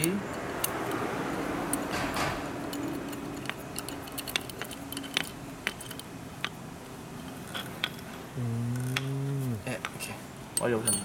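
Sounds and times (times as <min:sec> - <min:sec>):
hex key clicking in screw: 0:02.6 - 0:06.6
man humming: 0:08.3 - 0:09.7.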